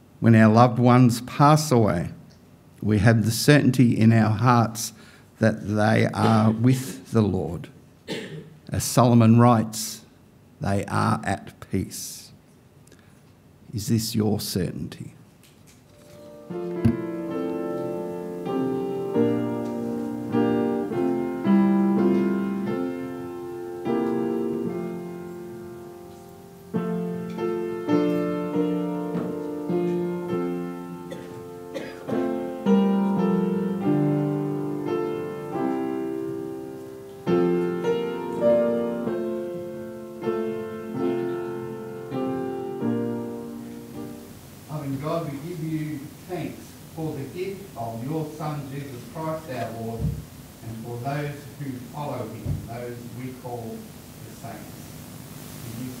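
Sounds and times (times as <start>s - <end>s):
slow gentle piano piece: 15.9s - 56.0s.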